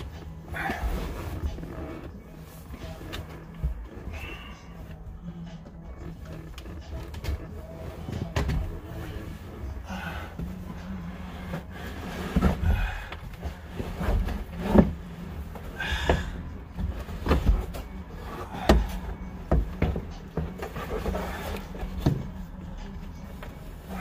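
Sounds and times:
scraping and shuffling: 0:00.0 - 0:24.0
steady low hum: 0:00.0 - 0:24.0.

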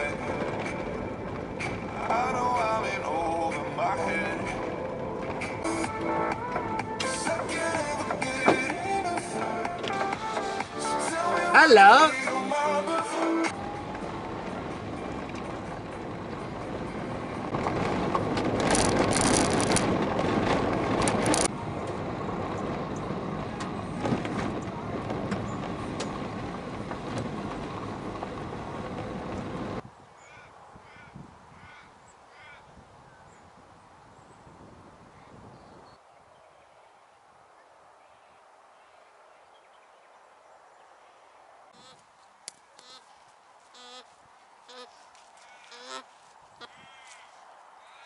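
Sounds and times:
tyres rolling on gravel: 0:00.0 - 0:05.8, 0:13.5 - 0:29.8
car engine: 0:13.3 - 0:29.8
bird calls: 0:30.2 - 0:33.5, 0:35.2 - 0:48.0.

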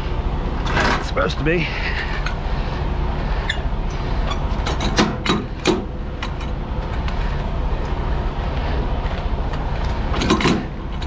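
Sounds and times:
diesel truck engine idling: 0:00.0 - 0:11.0
metal clanks of crank: 0:00.6 - 0:01.2, 0:04.3 - 0:07.1, 0:10.1 - 0:11.0.

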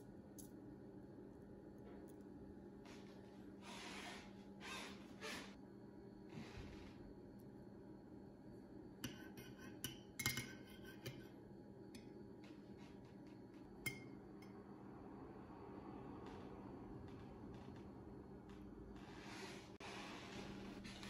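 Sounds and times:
faint steady hum: 0:00.0 - 0:21.0
metal spoon clinking on ceramic: 0:09.0 - 0:11.3.

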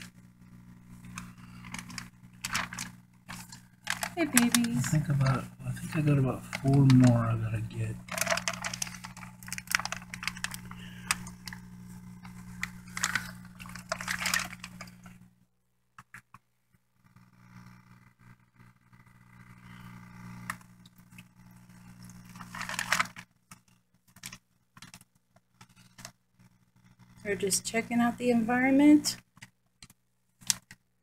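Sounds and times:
steady low hum: 0:00.0 - 0:15.6, 0:16.7 - 0:23.6
water splashing into bucket: 0:12.6 - 0:14.9.

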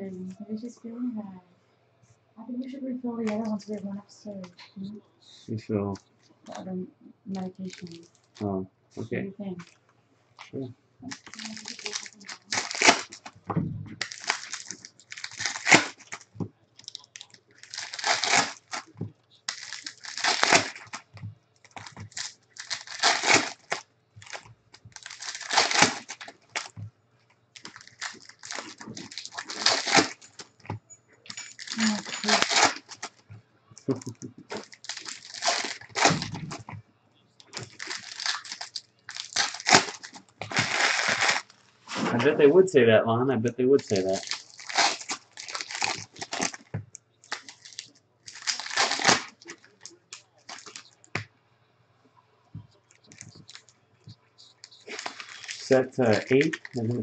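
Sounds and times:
cellophane and foil crinkling: 0:03.2 - 0:03.8, 0:07.4 - 0:08.4, 0:11.1 - 0:26.9, 0:27.5 - 0:36.8, 0:37.4 - 0:41.7, 0:43.7 - 0:51.1, 0:52.7 - 0:57.0.

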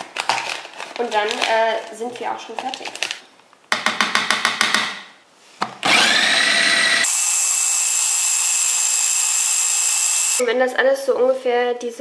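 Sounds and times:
food processor motor whining: 0:05.9 - 0:10.4
food processor pulsing: 0:05.9 - 0:10.4.

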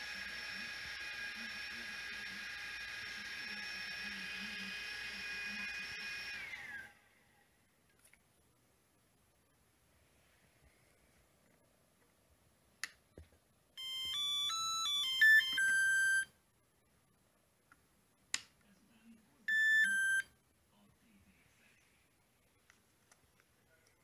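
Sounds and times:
electronic beep tunes: 0:13.8 - 0:16.3, 0:19.5 - 0:20.3.

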